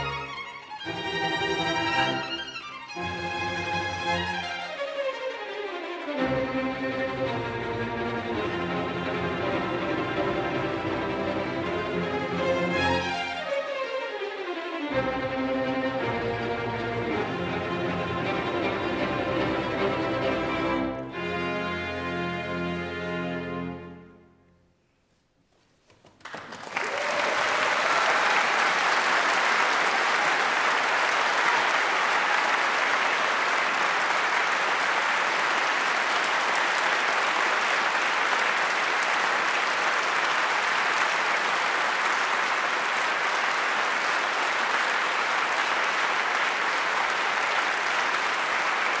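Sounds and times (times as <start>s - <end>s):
audience applauding: 25.9s - 49.0s.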